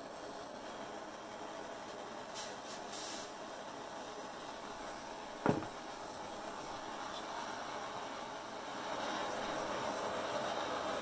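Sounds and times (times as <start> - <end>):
gas torch flame hissing: 0.0 - 11.0
high-pitched hissing bursts: 2.4 - 3.5
sharp knock: 5.4 - 5.8.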